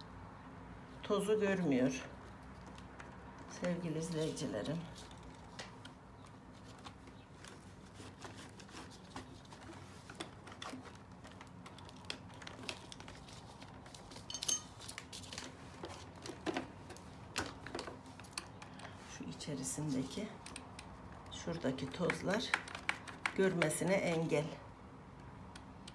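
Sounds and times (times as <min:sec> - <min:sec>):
plastic clicks and taps: 0:21.9 - 0:24.2.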